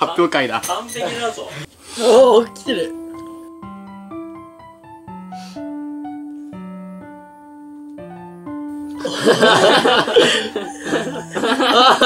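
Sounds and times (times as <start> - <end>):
slow piano music: 1.9 - 12.0
young men laughing loudly: 9.0 - 12.0.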